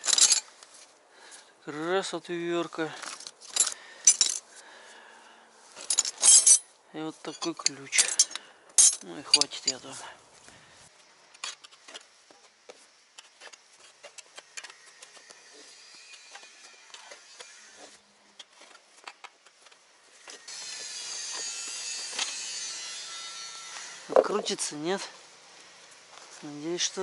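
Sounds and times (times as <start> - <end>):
hand tools clicking and knocking: 3.0 - 4.4, 7.3 - 9.8.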